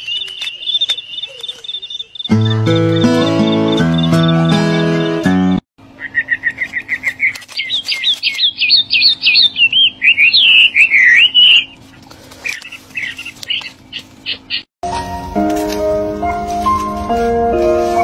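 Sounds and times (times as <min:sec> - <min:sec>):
songbird chirping and whistling: 0:00.0 - 0:05.1, 0:06.0 - 0:11.8.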